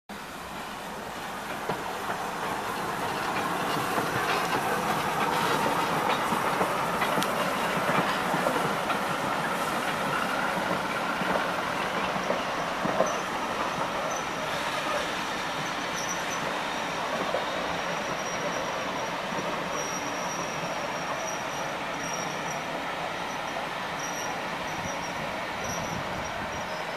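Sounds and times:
train wheels rumbling on track: 0.1s - 26.9s
high wheel squeal: 9.2s - 26.9s.

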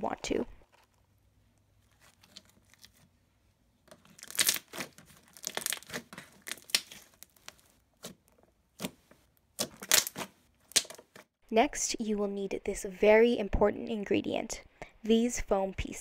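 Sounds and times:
slime crackling and popping: 3.9s - 11.0s.

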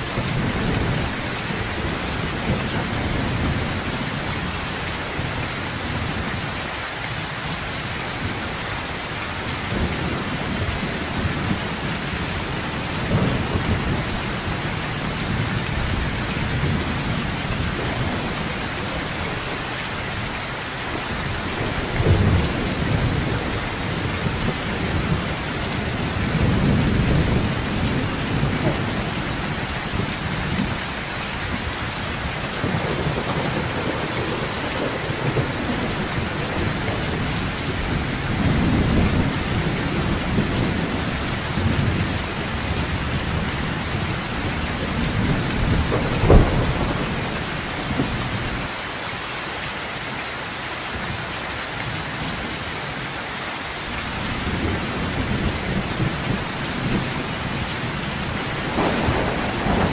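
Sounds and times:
low thunder rumbles: 0.0s - 6.5s, 7.1s - 48.8s, 54.0s - 59.9s
heavy rain on metal roof: 0.0s - 59.9s.

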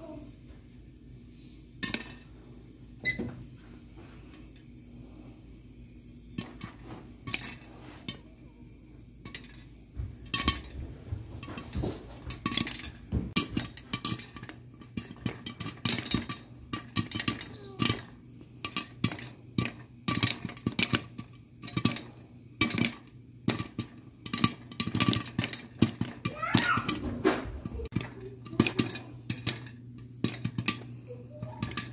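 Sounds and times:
popcorn popping in covered pan: 0.0s - 31.9s.

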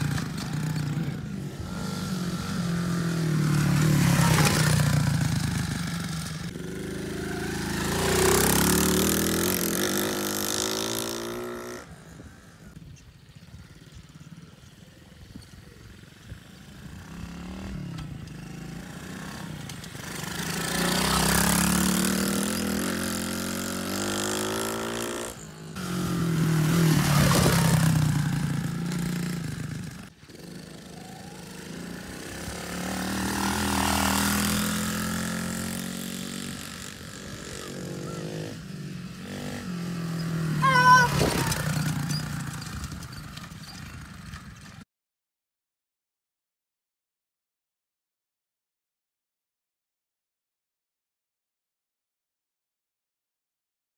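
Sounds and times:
pit bike engine revving: 0.0s - 11.9s, 16.8s - 44.4s.

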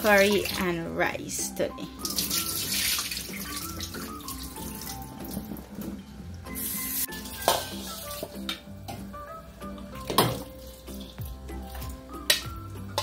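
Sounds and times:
background music: 0.0s - 13.0s
tap water running into sink: 2.0s - 6.0s.

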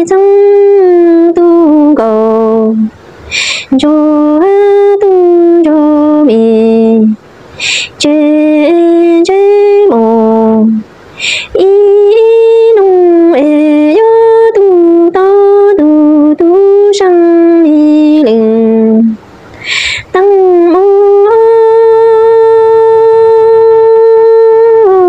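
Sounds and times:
woman singing unaccompanied: 0.0s - 25.0s
sharp breath intake: 3.1s - 3.8s, 7.4s - 8.0s, 11.1s - 11.6s, 19.5s - 20.1s.

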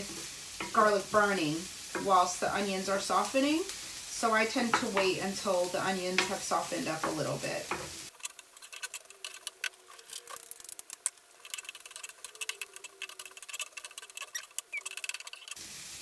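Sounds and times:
onions frying in oil: 0.0s - 16.0s
wooden spatula scraping pan: 11.4s - 15.6s.

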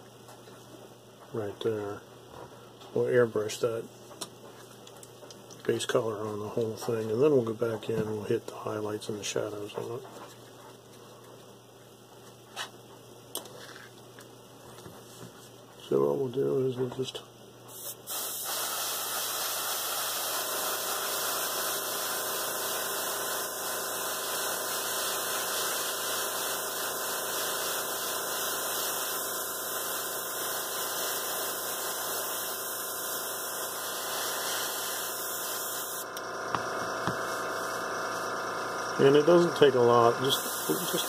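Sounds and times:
air compressor hum: 17.6s - 41.0s
airbrush air hiss: 17.7s - 36.1s, 36.9s - 41.0s.

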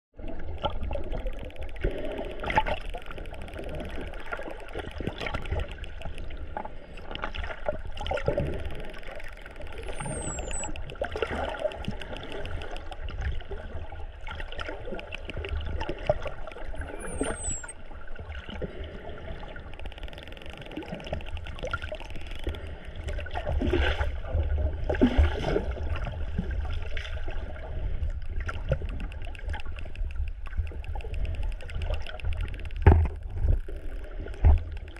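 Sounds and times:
bubbling and crackling clicks: 0.2s - 34.9s
underwater water rush: 0.2s - 34.9s
high dolphin whistles: 9.6s - 10.9s, 16.8s - 17.8s.

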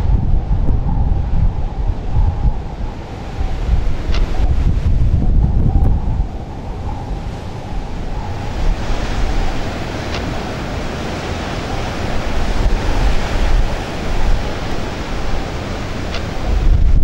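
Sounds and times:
wind buffeting microphone: 0.0s - 17.0s
surf breaking over rocks: 7.3s - 17.0s.

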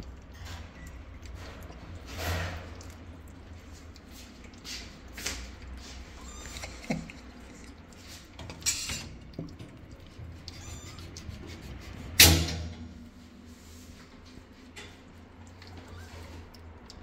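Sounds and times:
kittens mewing: 6.1s - 7.2s, 10.4s - 11.2s
small clicks and rustles: 13.9s - 17.0s.

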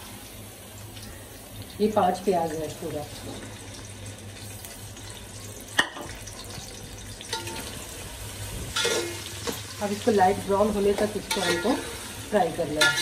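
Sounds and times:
onions sizzling in hot oil: 0.0s - 13.0s
metal spoon scraping a pot: 8.8s - 9.3s, 11.3s - 12.0s.

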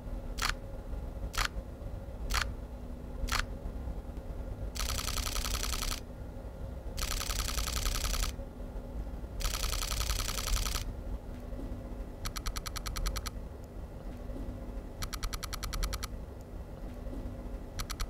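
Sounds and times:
camera shutter clicks: 3.3s - 3.5s, 4.8s - 6.0s, 7.0s - 8.3s, 9.4s - 10.8s
simulated electronic shutter sound: 4.8s - 6.0s, 7.0s - 8.3s, 9.4s - 10.8s, 15.0s - 16.1s, 17.8s - 18.0s.

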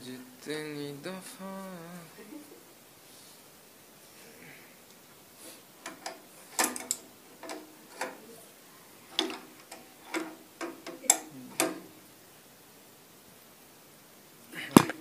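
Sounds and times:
spanner clicking on metal fitting: 5.8s - 8.2s, 9.2s - 11.9s.

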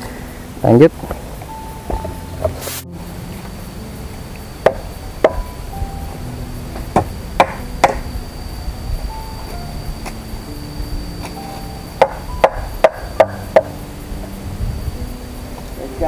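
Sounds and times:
chopping strikes on wood: 7.0s - 8.0s.

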